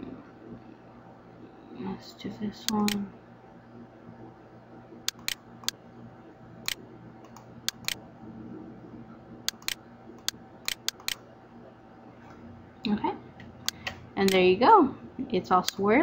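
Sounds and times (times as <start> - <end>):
faint steady hum: 0.0 - 16.0
computer mouse clicking: 2.7 - 3.0, 5.1 - 5.8, 6.6 - 8.0, 9.5 - 11.2.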